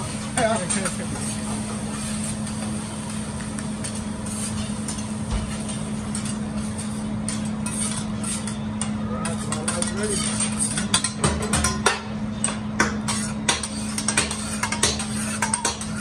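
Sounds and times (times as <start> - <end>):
rice sizzling on a griddle: 0.0 - 10.6
steady hum: 0.0 - 16.0
metal spatulas scraping and tapping: 0.4 - 1.3, 3.5 - 16.0.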